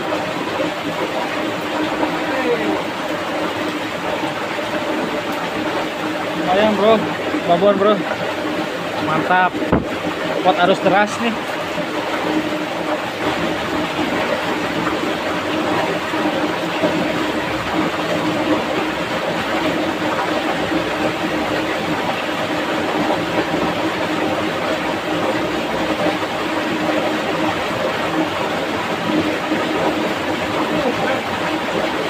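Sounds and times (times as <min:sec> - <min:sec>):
stream rushing over rocks: 0:00.0 - 0:32.0.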